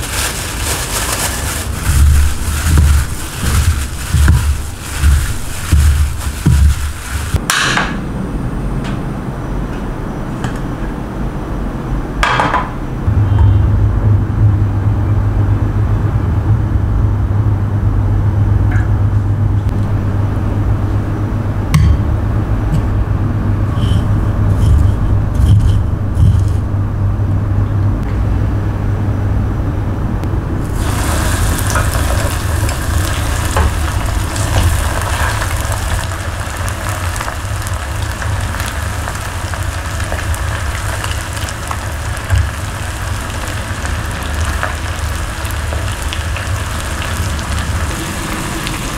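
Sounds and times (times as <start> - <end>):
chicken deep-frying in oil: 0.0 - 7.4, 30.6 - 48.9
gas flame low rumble: 0.0 - 48.9.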